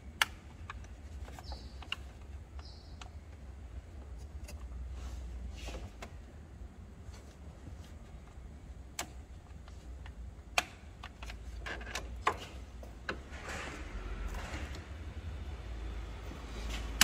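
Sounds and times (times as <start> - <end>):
tools clicking and knocking: 9.0 - 13.2.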